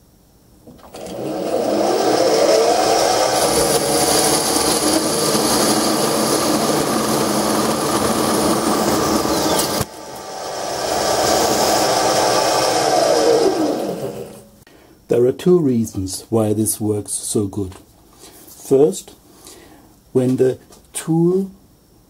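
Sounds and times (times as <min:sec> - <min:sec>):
lathe cutting metal with high whine: 0:00.8 - 0:14.4.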